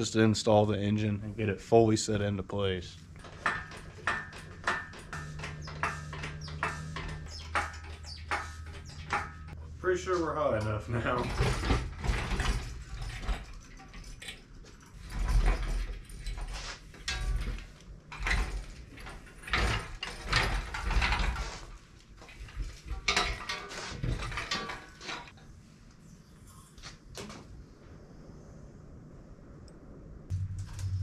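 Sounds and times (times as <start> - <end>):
metallic clanking and rattling: 3.0 - 9.6, 10.5 - 25.4.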